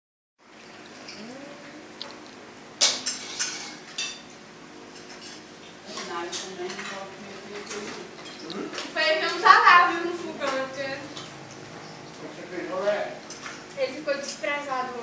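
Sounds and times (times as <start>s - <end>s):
dishes and cutlery clinking: 2.8s - 11.9s.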